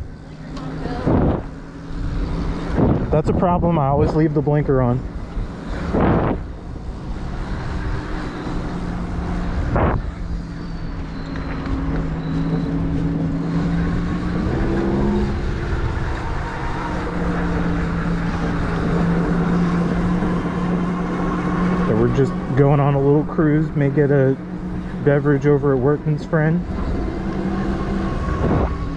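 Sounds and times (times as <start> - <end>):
wind and road rumble: 0.0 - 28.9
electric moped motor whining: 5.2 - 22.0.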